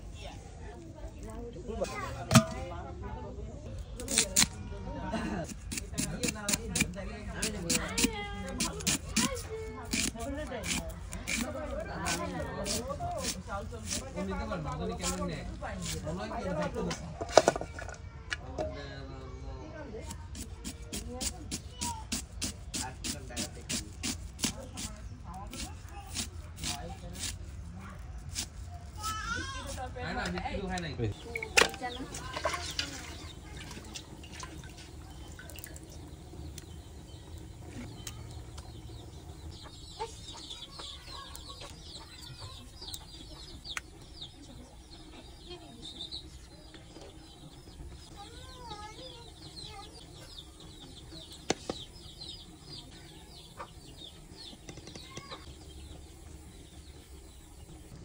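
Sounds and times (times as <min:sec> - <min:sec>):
chickens clucking and peeping: 0:29.9 - 0:58.0.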